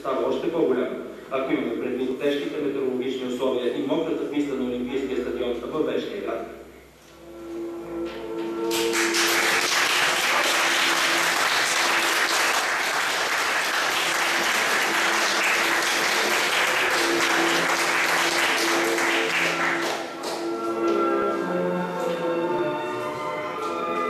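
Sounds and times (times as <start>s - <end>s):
quiet music: 0.0s - 24.0s
crowd applauding: 8.7s - 20.5s.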